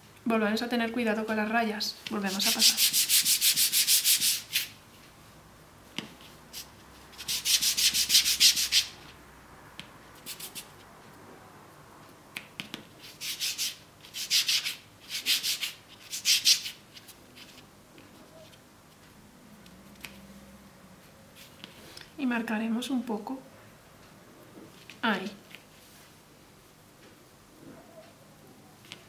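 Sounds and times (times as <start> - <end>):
hands rubbing fondant: 2.0 - 4.8.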